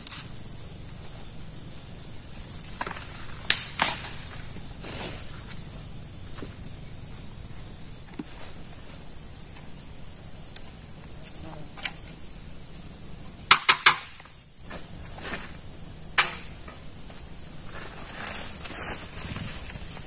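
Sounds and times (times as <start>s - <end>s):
insects chirring: 0.0s - 20.0s
sharp cracks: 2.6s - 4.5s, 13.5s - 14.3s, 16.1s - 16.8s.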